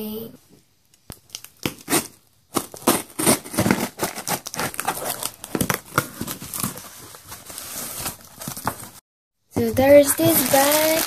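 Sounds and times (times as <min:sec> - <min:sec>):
crackling of tape and cardboard: 0:00.8 - 0:09.0, 0:10.0 - 0:11.0
packing tape torn away: 0:01.1 - 0:06.8.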